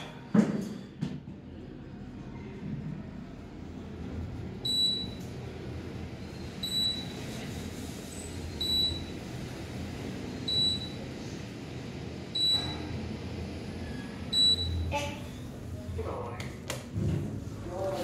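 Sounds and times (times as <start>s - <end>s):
elevator car humming: 1.7s - 16.2s
elevator beep: 4.6s - 5.3s, 6.4s - 7.2s, 8.5s - 9.3s, 10.4s - 11.1s, 12.3s - 13.0s, 14.3s - 15.5s.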